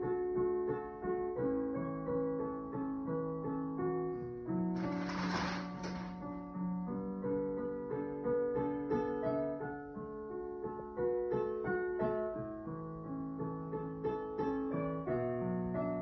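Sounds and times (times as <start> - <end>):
slow piano piece: 0.0 - 16.0
sheet music page turning: 4.8 - 6.4.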